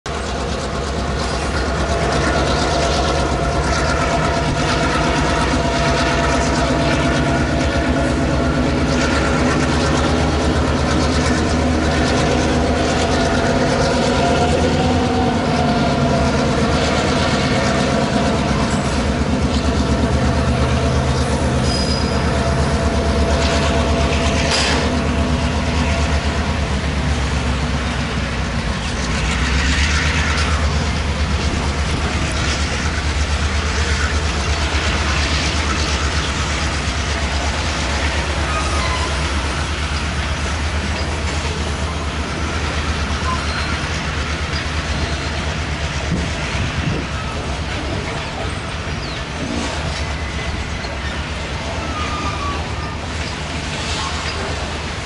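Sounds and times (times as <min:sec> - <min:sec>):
diesel locomotive running: 0:00.0 - 0:55.0
rail cars rumbling and clattering: 0:00.0 - 0:55.0.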